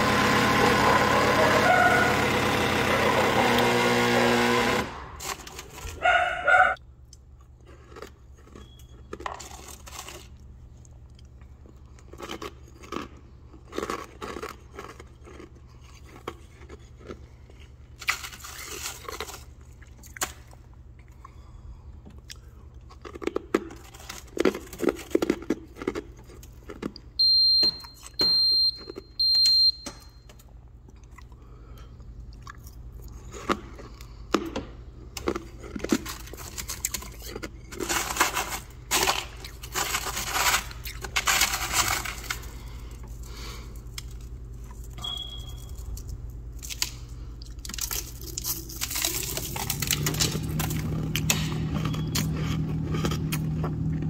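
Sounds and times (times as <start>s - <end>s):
short high beeps: 45.0s - 45.8s.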